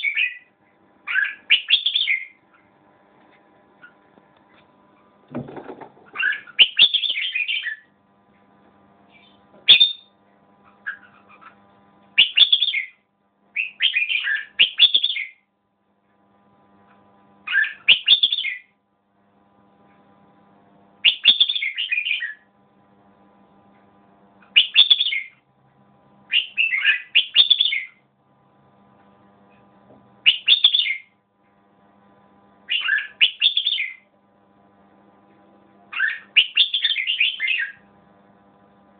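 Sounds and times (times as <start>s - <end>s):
bird singing: 0.0s - 2.7s, 6.1s - 7.9s, 9.1s - 10.1s, 12.2s - 13.0s, 13.6s - 15.5s, 17.5s - 18.7s, 21.0s - 22.5s, 24.5s - 25.4s, 26.3s - 28.0s, 30.2s - 31.1s, 32.7s - 34.0s, 35.9s - 37.8s.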